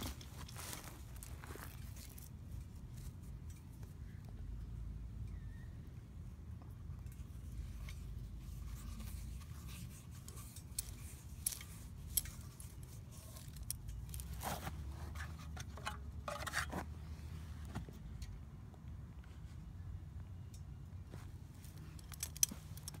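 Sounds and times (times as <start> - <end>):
wrench and engine parts scraping: 7.0 - 17.4, 21.6 - 23.0.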